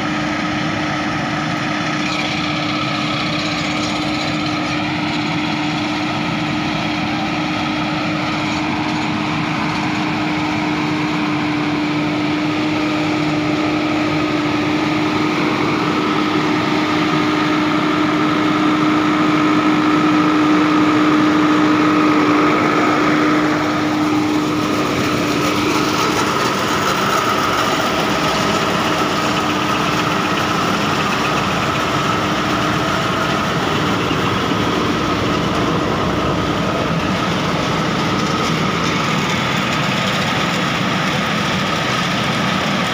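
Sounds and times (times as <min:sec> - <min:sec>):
harvester machinery: 0:00.0 - 0:42.9
tractor diesel engine running: 0:00.0 - 0:42.9
steady hum: 0:10.8 - 0:40.8.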